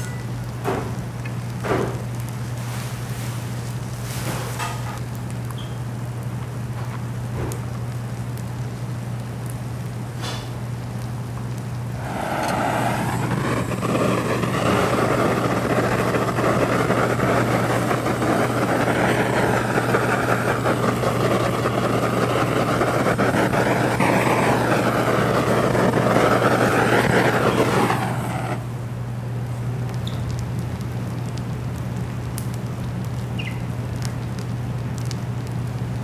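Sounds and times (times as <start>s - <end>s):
constant low hum: 4.6s - 36.0s
loud steady rushing noise: 12.0s - 28.8s.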